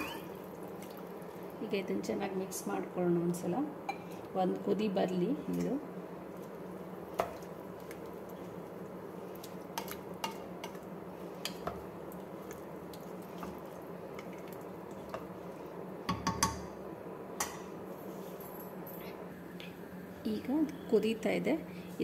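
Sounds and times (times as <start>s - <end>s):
spoon stirring in a pot: 5.5s - 16.7s.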